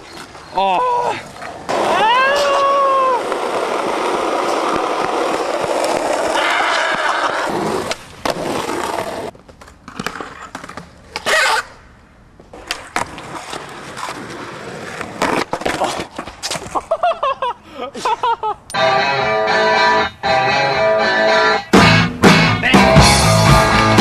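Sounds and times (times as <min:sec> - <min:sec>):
skateboard wheels rolling: 0:00.0 - 0:17.1
skateboard impact: 0:01.3 - 0:11.8, 0:12.4 - 0:17.0
skateboard clacks and knocks: 0:01.7 - 0:10.9.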